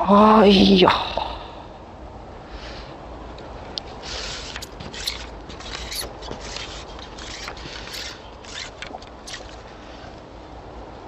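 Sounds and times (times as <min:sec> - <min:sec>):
grass and reeds rustling: 0:03.7 - 0:10.3.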